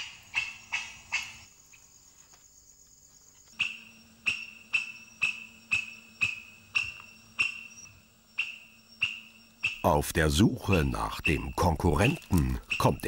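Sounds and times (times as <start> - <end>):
lemur sharp calls: 0.0 - 1.5, 8.4 - 13.0.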